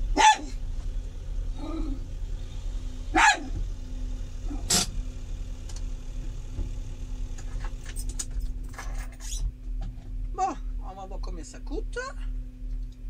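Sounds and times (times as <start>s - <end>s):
engine idling: 0.0s - 13.0s
dog barking sharply: 0.1s - 0.6s, 3.1s - 3.6s.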